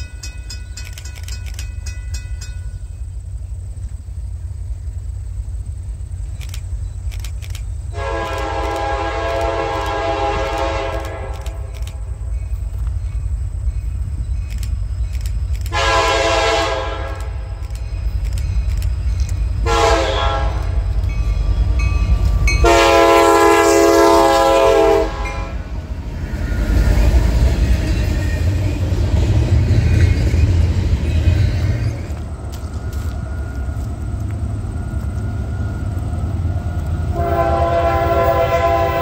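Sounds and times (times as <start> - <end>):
train wheels rumbling on rail: 0.0 - 39.0
locomotive air horn blasts: 7.9 - 11.7, 15.7 - 17.6, 19.6 - 20.9, 22.5 - 25.7, 37.1 - 39.0.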